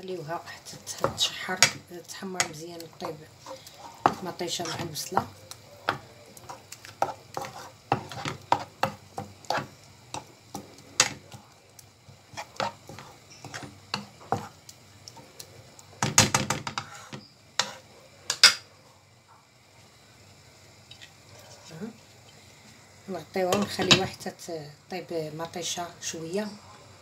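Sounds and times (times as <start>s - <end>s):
wooden spoon scraping a pan: 0.3s - 11.5s, 12.1s - 18.4s.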